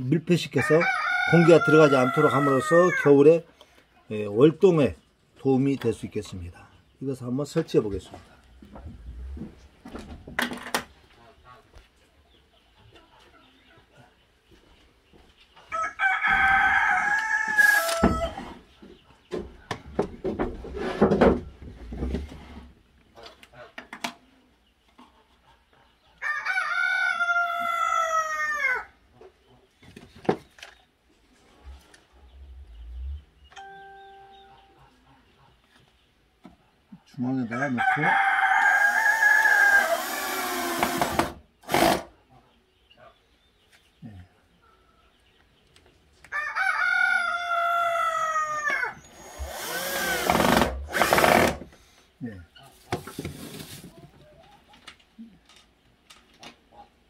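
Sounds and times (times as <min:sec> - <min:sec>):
rooster crowing: 0:00.6 - 0:03.2, 0:15.7 - 0:18.5, 0:26.2 - 0:28.9, 0:37.5 - 0:40.2, 0:46.3 - 0:49.0
cordless drill whining: 0:39.5 - 0:42.1, 0:49.0 - 0:51.6.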